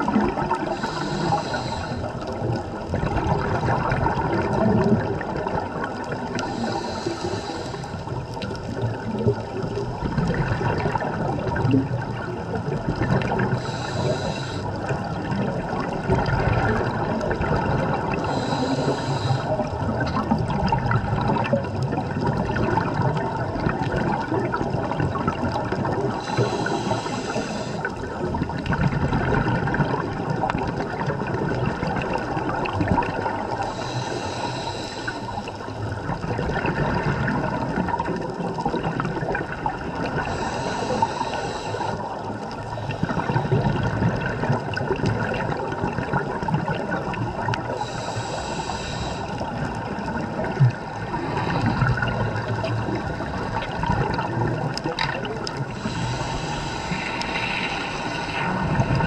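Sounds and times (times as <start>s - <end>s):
bubbling water from diver breathing: 0.0s - 59.0s
regulator hiss: 0.7s - 2.2s, 6.4s - 8.2s, 13.5s - 14.8s, 18.2s - 19.6s, 26.2s - 28.0s, 33.6s - 35.7s, 40.2s - 42.9s, 47.7s - 49.5s, 55.7s - 58.7s.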